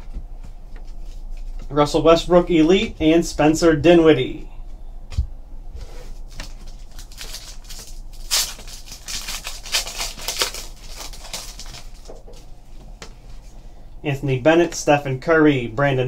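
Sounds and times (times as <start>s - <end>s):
foil wrapper crinkling and tearing: 6.3s - 12.4s.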